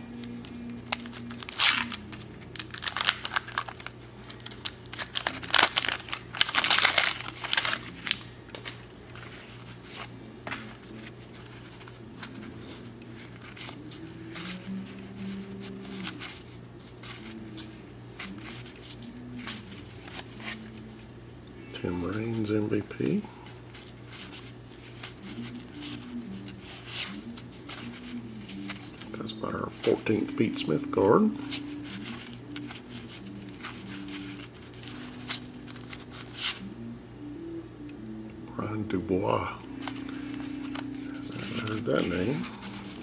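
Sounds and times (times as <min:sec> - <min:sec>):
cards rustling and clicking: 0:00.0 - 0:21.0, 0:22.0 - 0:36.6, 0:39.7 - 0:43.0
wrapper tearing and crinkling: 0:00.2 - 0:20.9, 0:31.4 - 0:36.6, 0:39.8 - 0:43.0.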